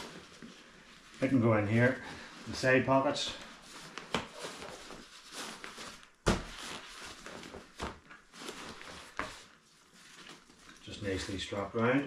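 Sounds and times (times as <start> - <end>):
nylon fabric rustling and scraping: 0.0 - 12.0.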